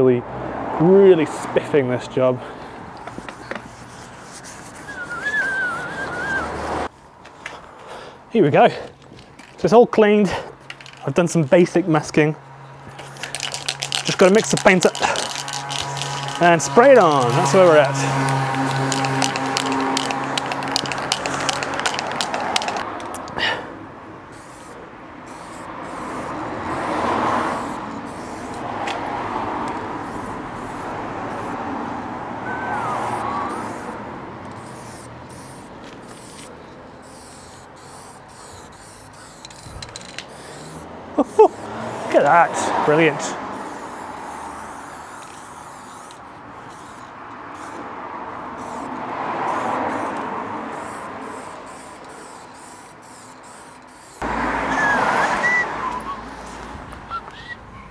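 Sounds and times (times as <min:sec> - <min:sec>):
road vehicle passing: 0:00.0 - 0:57.9
traffic background: 0:00.0 - 0:57.9
spray-paint can hissing: 0:12.9 - 0:23.3, 0:24.3 - 0:28.7, 0:29.7 - 0:31.6, 0:32.8 - 0:42.1, 0:43.5 - 0:47.8, 0:48.6 - 0:54.3.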